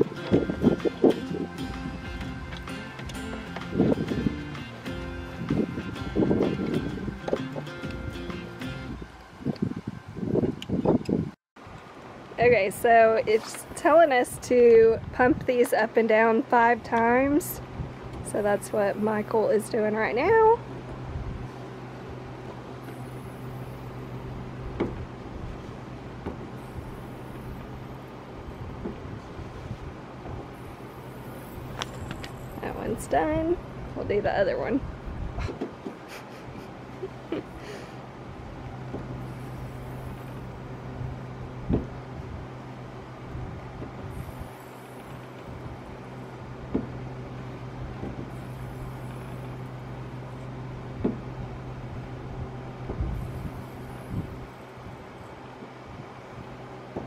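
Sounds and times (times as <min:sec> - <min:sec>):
steady low hum: 0:00.0 - 0:57.0
gas strut knocking on wood: 0:24.8 - 0:25.0, 0:51.0 - 0:51.2.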